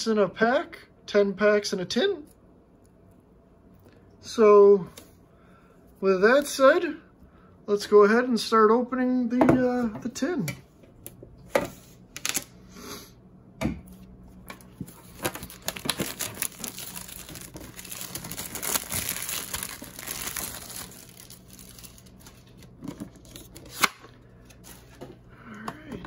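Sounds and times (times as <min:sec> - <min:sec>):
plastic wrap crinkling and tearing: 0:14.5 - 0:24.9.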